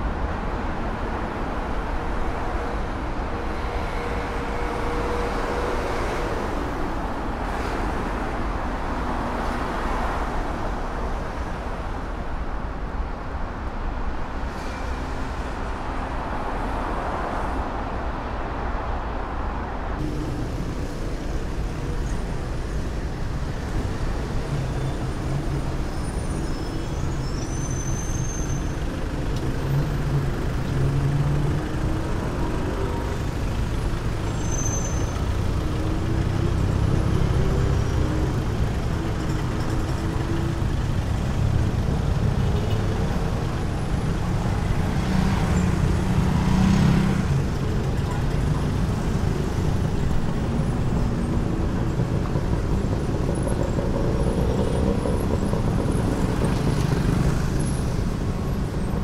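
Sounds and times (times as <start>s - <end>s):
hissy city background: 0.0s - 39.2s
road traffic passing: 0.0s - 59.0s
faint high squeaks: 34.3s - 35.2s.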